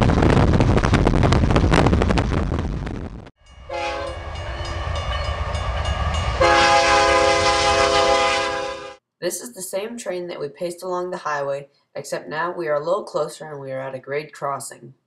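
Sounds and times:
loud rushing with rapid clatter: 0.0s - 3.3s
locomotive air horn chord: 3.6s - 9.0s.

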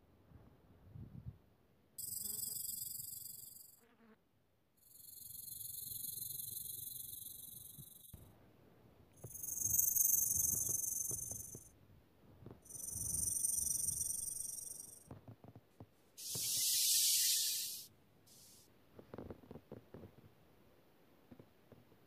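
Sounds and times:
snake hissing: 16.2s - 18.6s.

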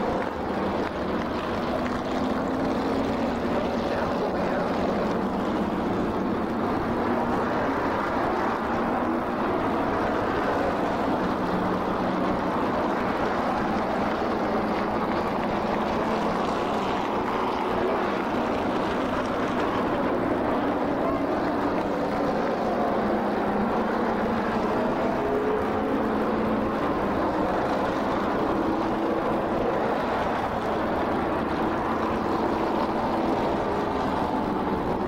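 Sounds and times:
race car engines at speed: 0.0s - 35.0s.

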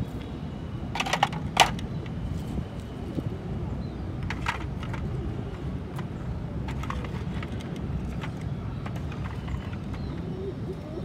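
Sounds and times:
wooden sticks clattering: 1.0s - 1.8s.

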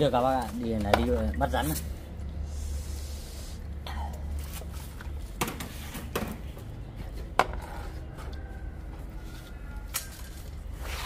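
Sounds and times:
low steady rumble: 0.0s - 5.4s.

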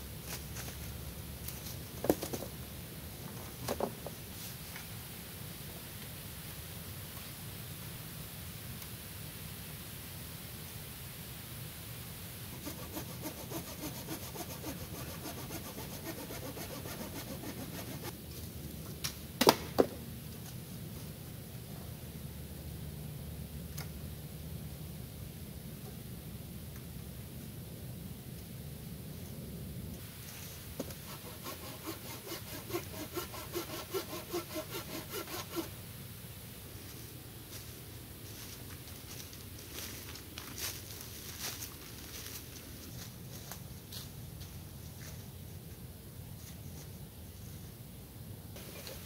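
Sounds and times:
hand saw cutting wood: 12.5s - 18.1s, 30.8s - 35.7s.

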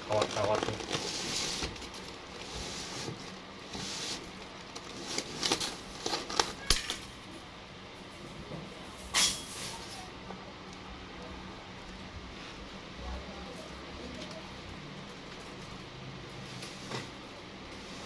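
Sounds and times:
rustling scrape: 0.1s - 6.5s, 17.7s - 18.0s.

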